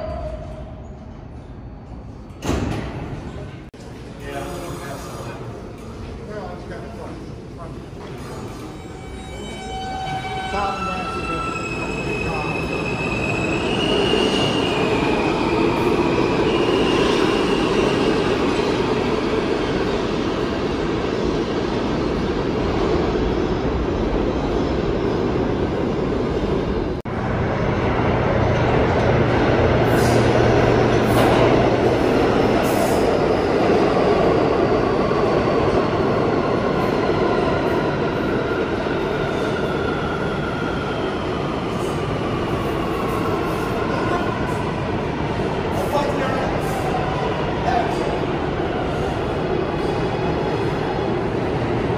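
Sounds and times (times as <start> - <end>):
subway train rumble and clatter: 0.0 - 51.9
high wheel squeal: 8.6 - 18.1.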